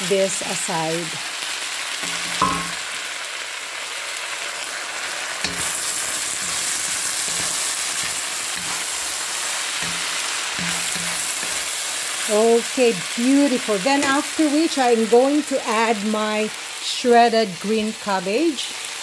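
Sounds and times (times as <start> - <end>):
food sizzling in hot oil: 0.0 - 19.0
wooden spatula scraping a pan: 5.4 - 12.4.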